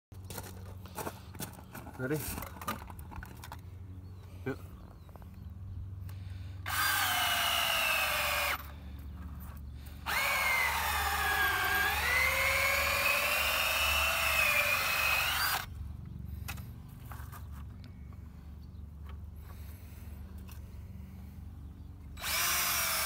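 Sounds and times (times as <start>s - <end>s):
cordless drill boring into wood: 6.6s - 8.6s, 10.0s - 15.7s, 22.2s - 23.0s.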